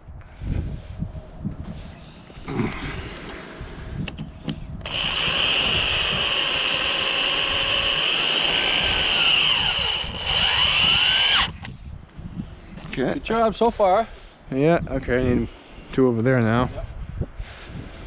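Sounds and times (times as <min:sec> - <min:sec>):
electric drill driving screw: 0:04.8 - 0:11.7.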